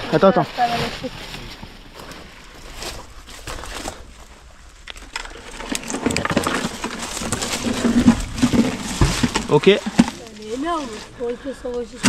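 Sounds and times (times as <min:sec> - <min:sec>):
metal box scraping on concrete: 0:05.7 - 0:11.1.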